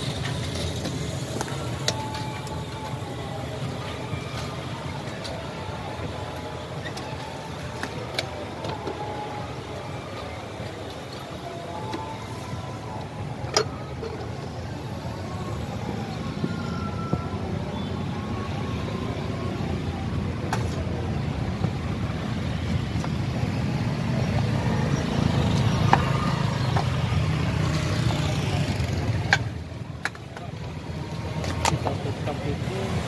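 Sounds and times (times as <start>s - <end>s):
vehicle engine and road noise: 0.0s - 33.0s.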